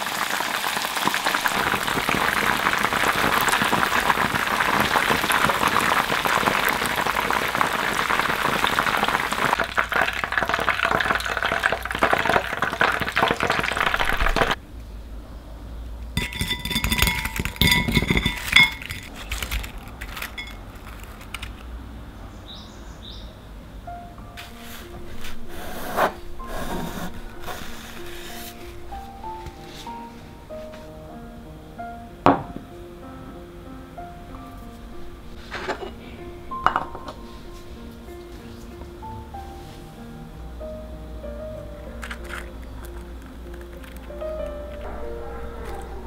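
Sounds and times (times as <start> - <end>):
deep-frying sizzle: 0.0 - 14.6
metal skimmer clinking on pot: 16.2 - 19.1.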